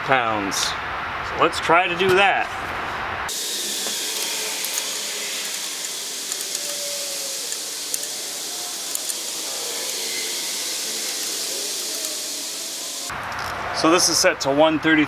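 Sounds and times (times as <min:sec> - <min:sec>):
steady hiss: 0:03.3 - 0:14.2.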